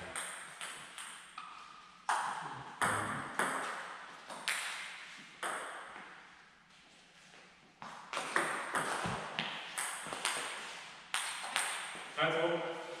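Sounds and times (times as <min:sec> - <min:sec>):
table tennis ball bouncing: 0:00.0 - 0:06.1, 0:07.8 - 0:12.0.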